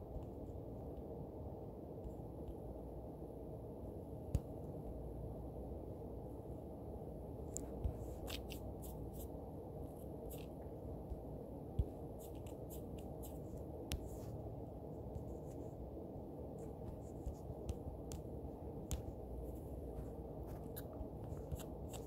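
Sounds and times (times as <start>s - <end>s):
steady low hum: 0.0s - 22.0s
taps and scratches on touchscreen: 7.5s - 9.3s, 10.0s - 10.6s, 11.8s - 14.4s, 16.6s - 22.0s.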